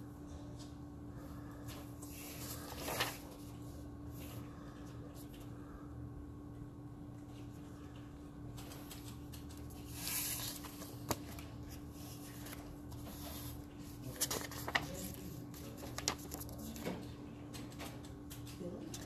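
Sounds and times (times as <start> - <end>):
faint steady hum: 0.0 - 19.0
paper rustling: 1.6 - 4.4, 8.5 - 17.1.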